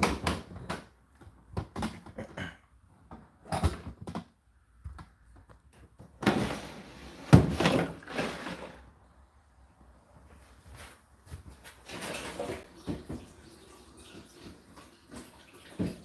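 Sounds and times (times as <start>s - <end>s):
plastic container scraping out: 6.2s - 9.0s.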